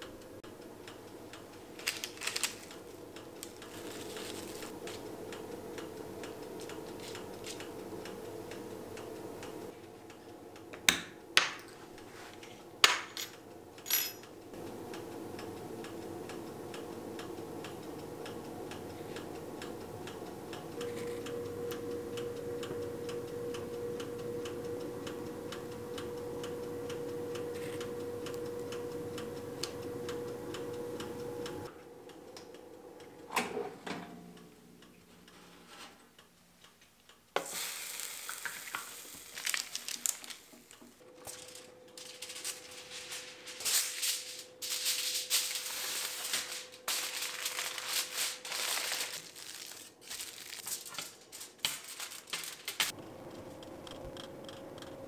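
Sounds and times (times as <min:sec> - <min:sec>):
light ticking: 0:00.0 - 0:03.8, 0:04.8 - 0:10.7, 0:14.2 - 0:33.3, 0:52.2 - 0:55.0
steady hum: 0:00.0 - 0:37.3, 0:40.5 - 0:55.0
aluminium foil crinkling: 0:01.7 - 0:05.1, 0:37.8 - 0:52.9.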